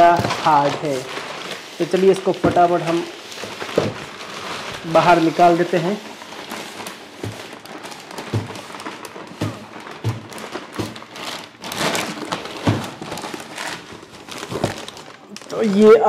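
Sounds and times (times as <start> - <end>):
plastic bag crinkling: 0.0 - 16.0
dull thumps against cardboard box: 7.2 - 11.3.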